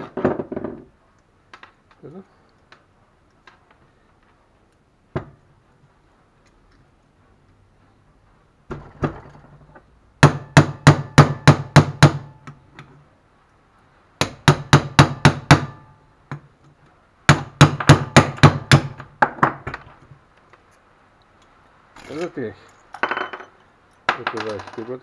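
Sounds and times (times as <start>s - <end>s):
metal pincers knocking on metal: 23.0s - 25.0s.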